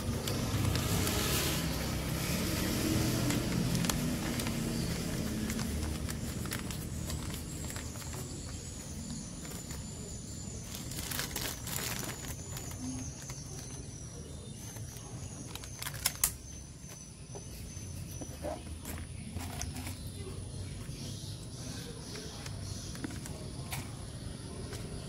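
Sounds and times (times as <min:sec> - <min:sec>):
paper wrapper rustling: 0:00.0 - 0:13.9, 0:14.5 - 0:17.0.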